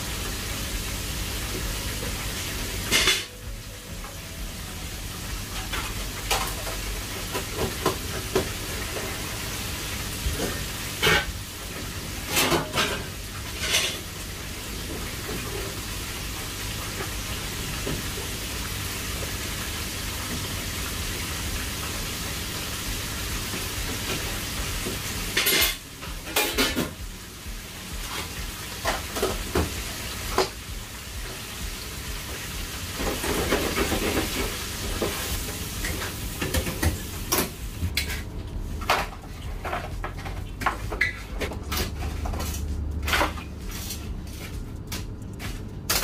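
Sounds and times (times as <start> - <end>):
food sizzling in hot oil: 0.0 - 46.0
metal tongs clanking on pans: 2.9 - 3.4, 12.3 - 14.1, 25.3 - 27.0.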